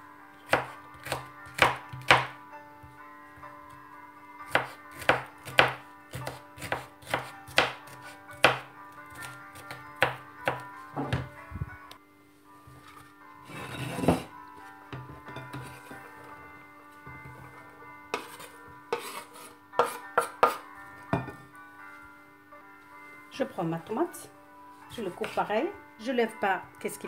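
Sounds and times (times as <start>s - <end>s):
knife chopping on wooden board: 0.5s - 2.4s, 4.5s - 11.3s, 18.1s - 20.6s.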